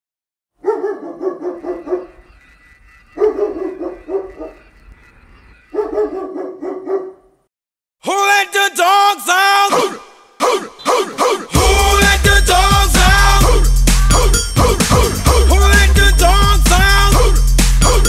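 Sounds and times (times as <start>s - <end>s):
dog yapping: 0.6s - 2.3s, 3.1s - 4.7s, 5.7s - 7.3s
music: 10.4s - 18.0s.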